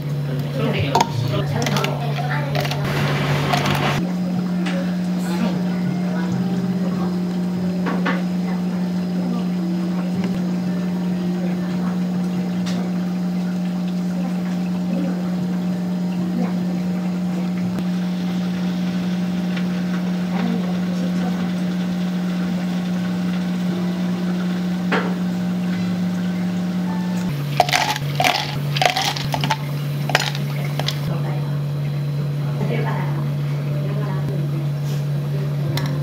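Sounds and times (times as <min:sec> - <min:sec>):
low machine hum: 0:00.0 - 0:36.0
utensils clicking and clinking: 0:00.9 - 0:04.0, 0:27.4 - 0:31.1.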